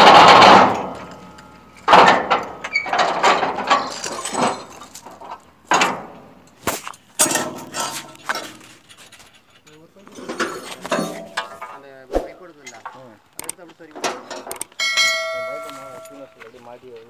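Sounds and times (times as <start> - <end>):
metallic clinks: 14.5 - 16.4.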